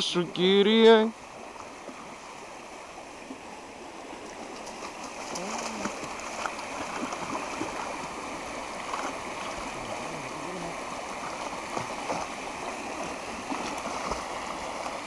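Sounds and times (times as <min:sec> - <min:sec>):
creek water running: 0:00.0 - 0:15.0
dog splashing in water: 0:04.7 - 0:07.9, 0:13.0 - 0:15.0.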